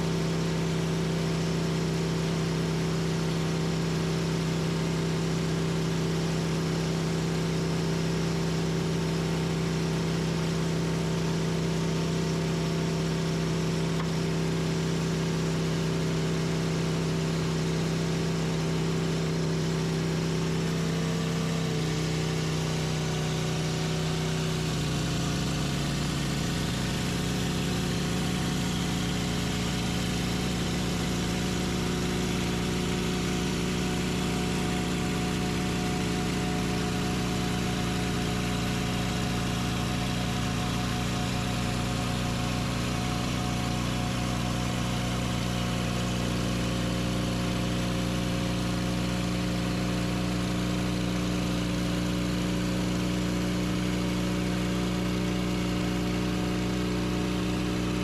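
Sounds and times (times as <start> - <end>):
sawmill engine running: 20.1 - 49.0.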